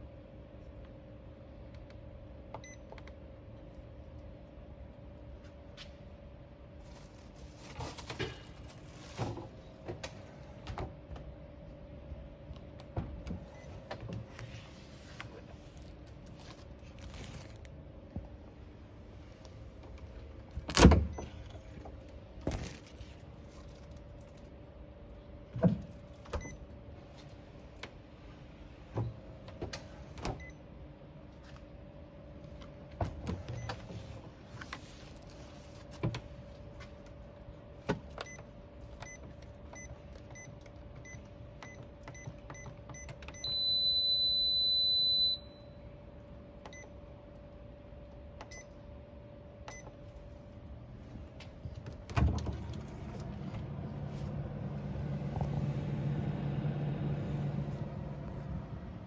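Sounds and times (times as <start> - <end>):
steady low hum: 0.0 - 59.0
long steady beep: 41.1 - 45.9
short beeps: 43.0 - 45.8.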